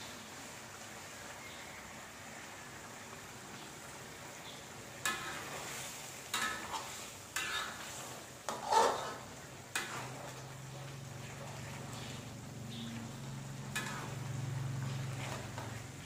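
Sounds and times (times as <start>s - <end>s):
soft hiss from pan: 0.0s - 16.0s
metal spoon scraping a wok: 5.0s - 16.0s.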